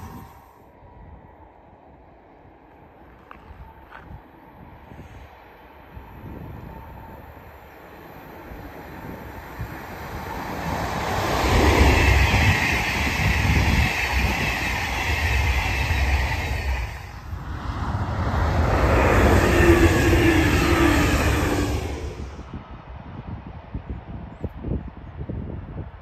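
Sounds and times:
second train approaching: 0.0 - 23.0
high-speed train passing: 0.0 - 26.0.

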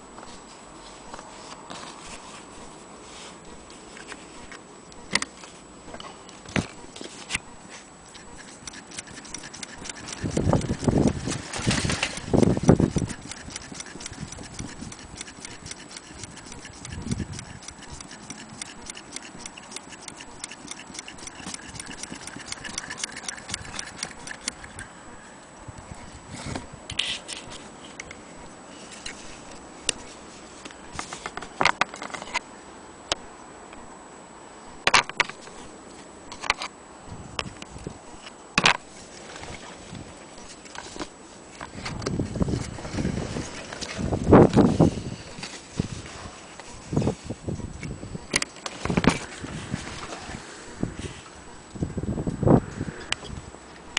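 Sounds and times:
metal parts clicking and knocking: 8.2 - 24.9
sewing machine ticking: 8.4 - 24.8.

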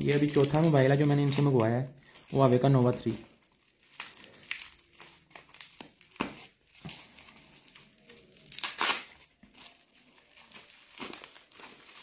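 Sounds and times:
packaging crinkling and tearing: 0.0 - 12.0.

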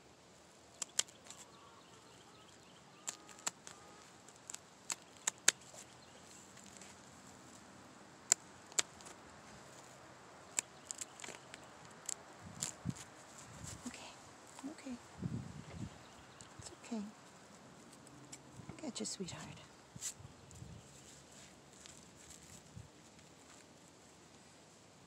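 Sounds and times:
scissors snipping feathers: 0.7 - 1.5, 3.0 - 5.9, 8.3 - 9.2.

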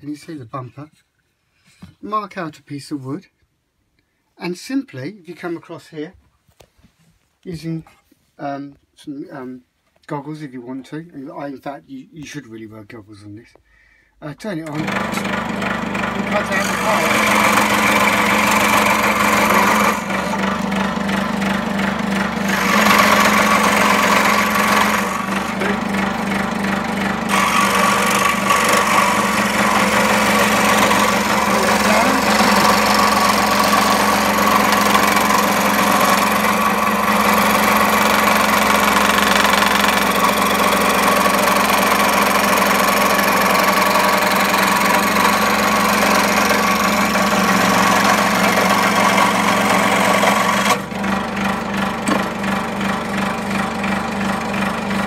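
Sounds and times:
scroll saw cutting wood: 14.6 - 55.0.

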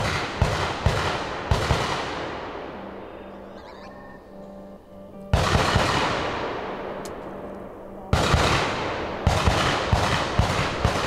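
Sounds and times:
single gunshots: 0.0 - 3.0, 5.3 - 7.1, 8.1 - 11.0
rapid gunfire with echo: 0.0 - 3.1, 5.3 - 11.0
background music: 0.0 - 11.0.

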